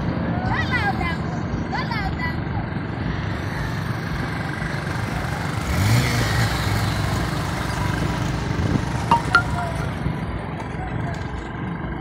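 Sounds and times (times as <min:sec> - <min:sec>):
traffic engines running: 0:00.0 - 0:12.0
motorcycle riding close: 0:03.4 - 0:09.1.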